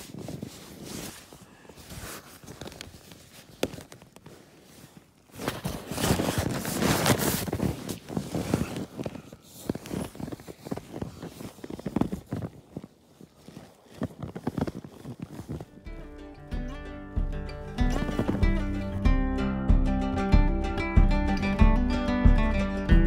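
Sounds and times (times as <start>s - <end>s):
nylon fabric rustling: 0.0s - 16.2s, 17.6s - 18.9s.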